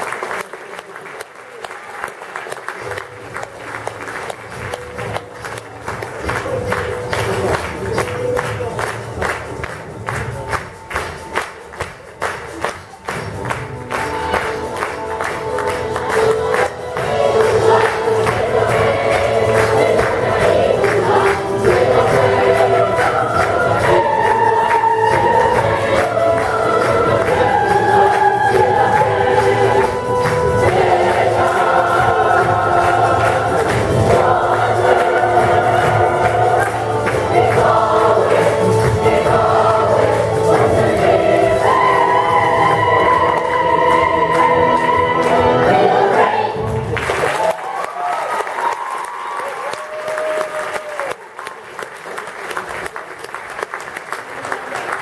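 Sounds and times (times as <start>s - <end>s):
audience applauding: 0.0s - 55.0s
percussion beat: 2.7s - 47.5s
chorus singing: 13.9s - 47.4s.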